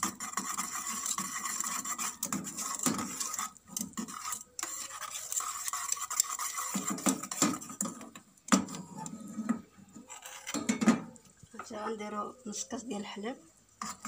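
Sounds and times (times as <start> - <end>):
whisk scraping a saucepan: 0.0 - 10.8, 13.8 - 14.0.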